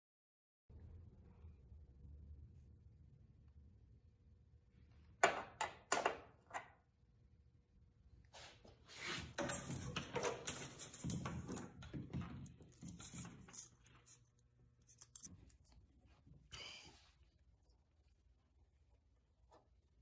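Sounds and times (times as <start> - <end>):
hand tools scraping and clinking: 8.9 - 11.9, 12.6 - 15.6.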